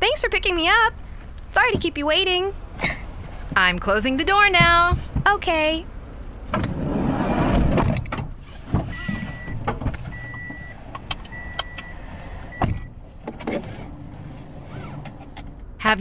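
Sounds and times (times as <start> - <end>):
rumbling rush: 0.9 - 10.2
car door shutting: 6.4 - 15.6
short electronic beeps: 8.9 - 12.6.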